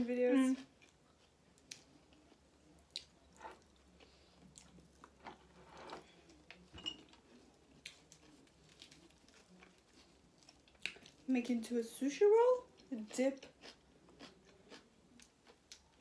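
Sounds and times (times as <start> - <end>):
soft chewing: 0.5 - 11.3, 12.6 - 16.0.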